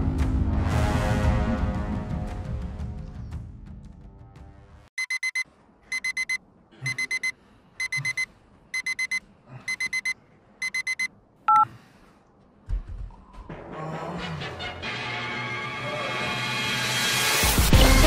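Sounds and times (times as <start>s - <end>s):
phone alarm short high beeps: 5.0s - 11.6s.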